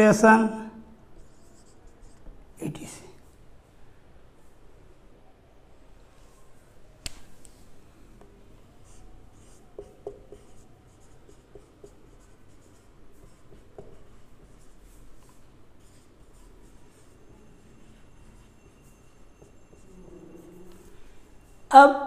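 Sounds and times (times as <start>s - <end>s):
marker scratching on whiteboard: 1.1s - 2.4s, 8.7s - 21.2s.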